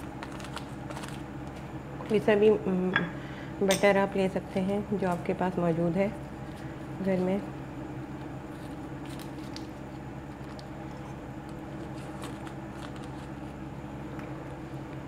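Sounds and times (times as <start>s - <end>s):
paper wrapper rustling: 0.0s - 1.3s, 8.5s - 11.0s, 11.6s - 13.6s
steady low hum: 0.0s - 15.0s.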